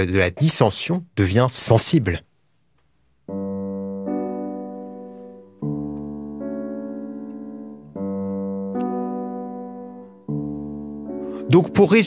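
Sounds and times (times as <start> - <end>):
piano chords: 3.2 - 12.0.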